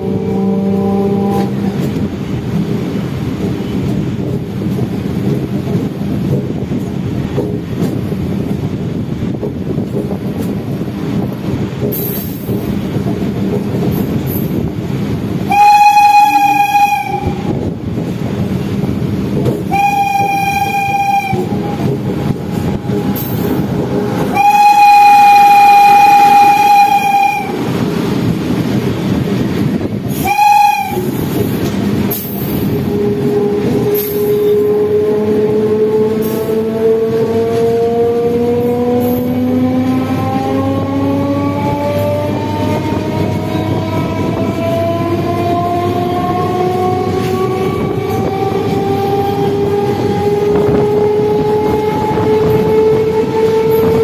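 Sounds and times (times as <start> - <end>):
electric train horn blasts: 0.0 - 1.9, 15.4 - 17.6, 19.7 - 27.7, 30.1 - 31.2, 32.7 - 54.0
passing train: 0.0 - 54.0
train wheels rumbling on track: 0.0 - 54.0.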